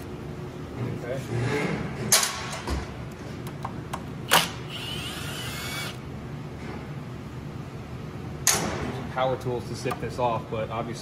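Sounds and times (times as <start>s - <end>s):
cordless power tool whirring: 4.3s - 6.0s.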